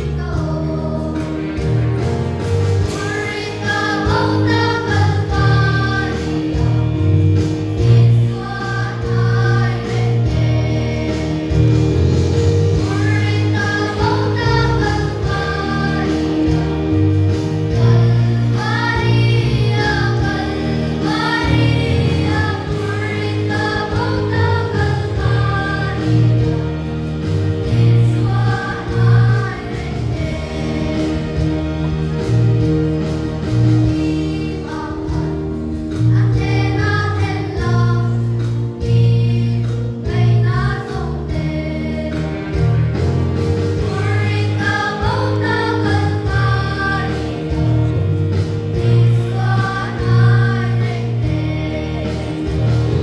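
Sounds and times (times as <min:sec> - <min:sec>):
girls choir singing a hymn: 0:00.0 - 0:02.0, 0:02.7 - 0:53.0
sustained low instrumental notes: 0:01.6 - 0:38.4.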